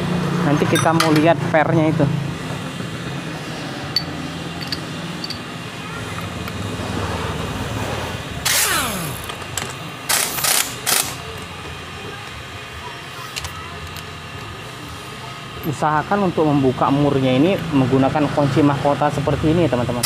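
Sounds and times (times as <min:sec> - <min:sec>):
impact wrench bursts: 0:08.4 - 0:11.2
motor winding down whine: 0:08.4 - 0:11.2.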